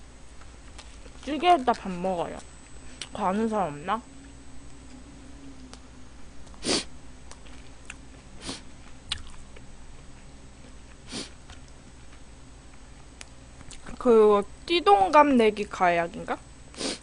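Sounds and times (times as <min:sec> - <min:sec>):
person sniffing: 0:06.6 - 0:06.9, 0:08.4 - 0:08.7, 0:11.1 - 0:11.4, 0:16.8 - 0:17.0.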